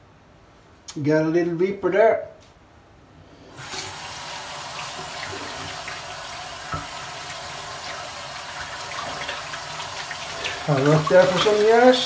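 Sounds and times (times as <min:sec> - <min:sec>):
tap running into sink: 0:04.7 - 0:11.9.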